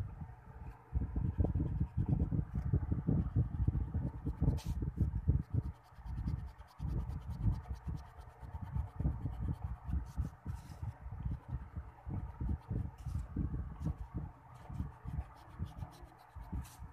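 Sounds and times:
scratchy drawing strokes on paper: 3.6s - 11.0s, 12.2s - 16.9s.

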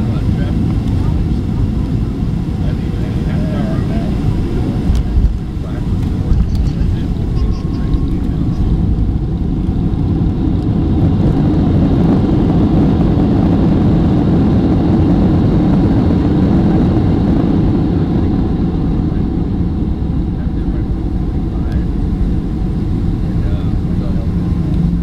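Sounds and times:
jet engines reverse thrust rush: 0.0s - 25.0s.

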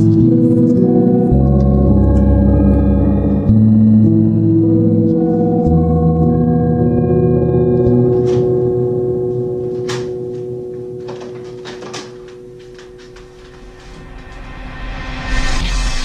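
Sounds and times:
low gong-like ringing: 0.0s - 15.4s
footsteps on wooden floor: 9.4s - 14.4s.

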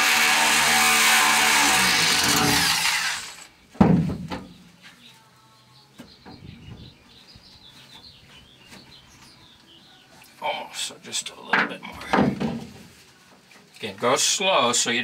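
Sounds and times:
power drill drilling sheet metal: 0.0s - 3.5s.

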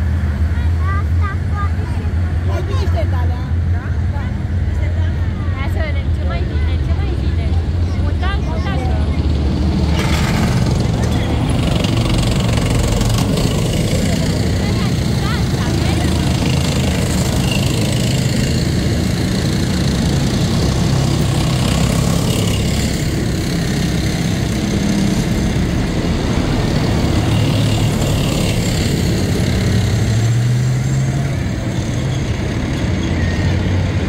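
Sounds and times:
heavy military vehicles driving past: 0.0s - 34.0s.

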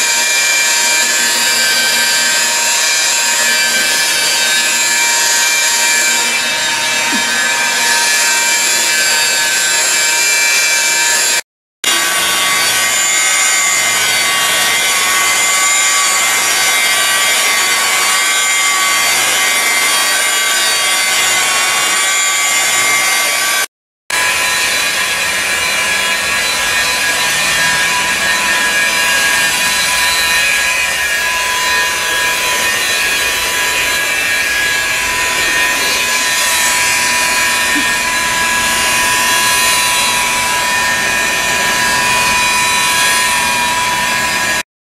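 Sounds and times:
power tool whirring: 0.0s - 44.6s.

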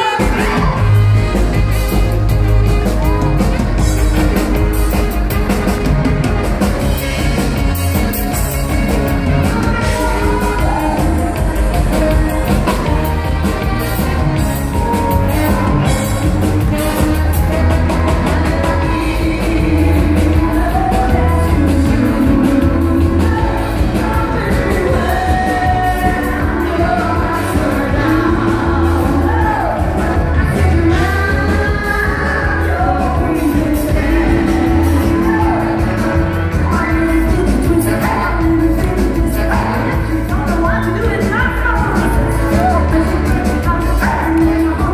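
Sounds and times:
woman singing into microphone: 0.0s - 1.1s, 9.2s - 13.2s, 14.7s - 44.9s
live band playing: 0.0s - 44.9s.

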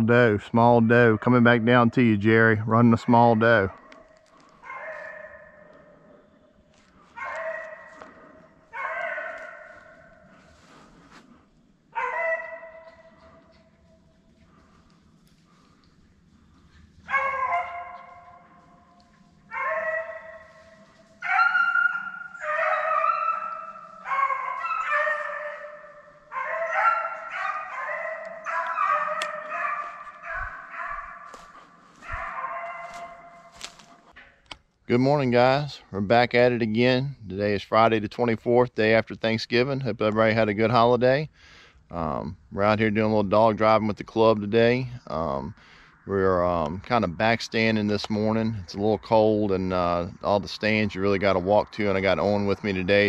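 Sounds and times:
hounds baying: 0.9s - 11.0s, 11.9s - 33.8s.

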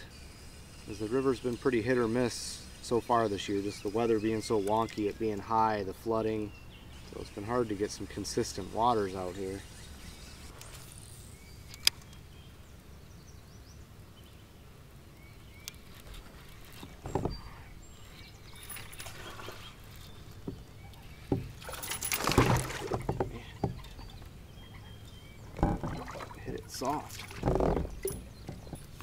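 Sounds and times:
sharp click: 11.6s - 12.2s
fish splashing in water: 21.4s - 24.1s, 25.4s - 28.7s.

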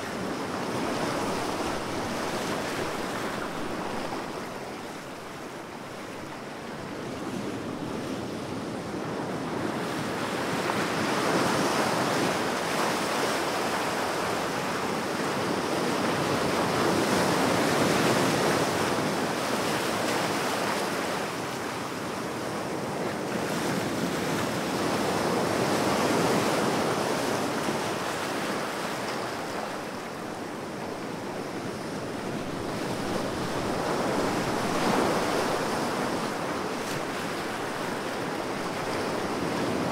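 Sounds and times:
ocean waves washing in: 26.6s - 39.9s.

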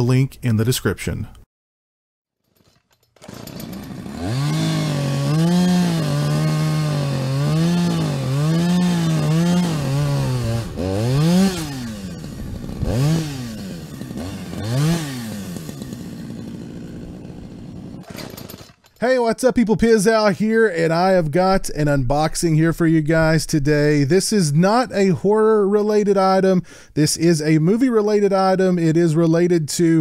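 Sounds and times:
chainsaw engine revving: 2.6s - 19.0s.

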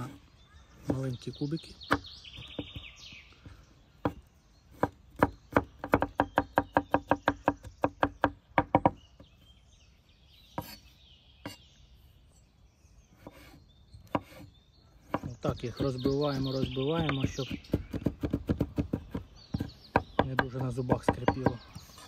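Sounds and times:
knife chopping on wooden board: 4.0s - 9.0s, 10.6s - 10.8s, 14.1s - 14.4s, 15.0s - 21.8s.

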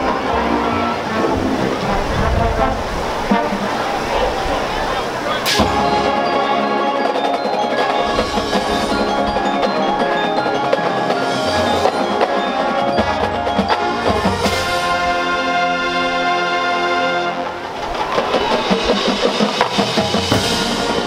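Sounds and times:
marching band music: 0.0s - 21.0s
mallet percussion ringing: 5.4s - 15.6s.

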